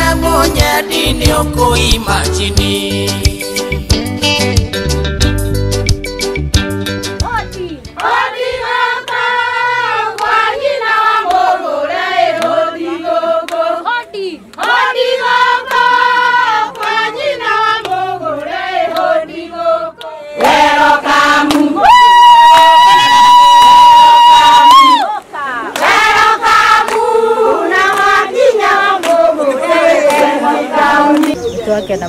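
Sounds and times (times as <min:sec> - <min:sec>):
group of voices singing: 0:00.0 - 0:03.8, 0:08.0 - 0:22.2, 0:25.2 - 0:31.4
low bass line: 0:00.0 - 0:07.9
crowd noise: 0:08.0 - 0:32.0.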